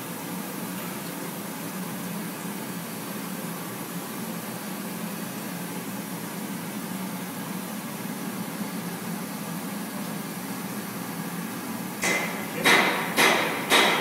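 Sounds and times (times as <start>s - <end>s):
machining centre running: 12.0s - 14.0s
sharp loud knocks: 12.0s - 14.0s.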